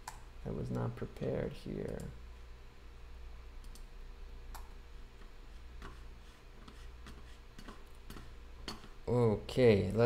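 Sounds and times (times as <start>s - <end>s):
low steady hum: 0.0s - 10.0s
computer mouse and key clicks: 1.8s - 2.1s, 3.6s - 3.9s, 4.5s - 4.7s, 6.6s - 9.0s.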